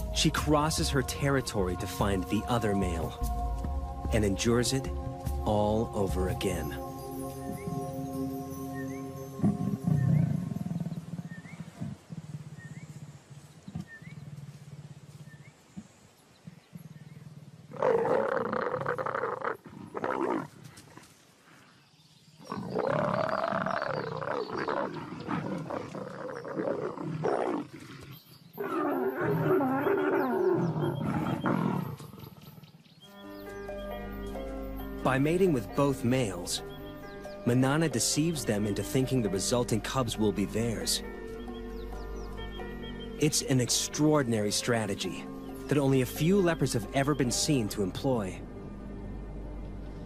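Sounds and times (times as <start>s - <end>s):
leopards growling: 9.4s - 15.4s, 16.8s - 21.6s, 22.4s - 32.8s.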